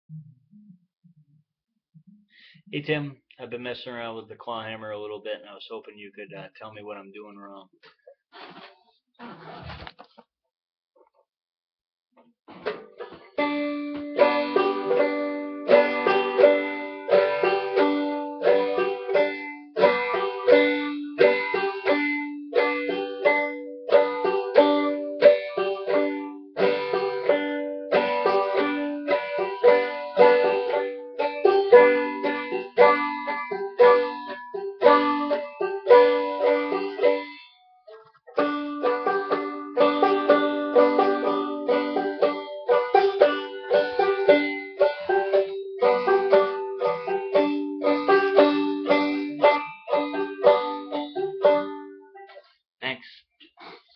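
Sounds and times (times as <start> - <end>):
banjo playing: 12.5 - 52.4.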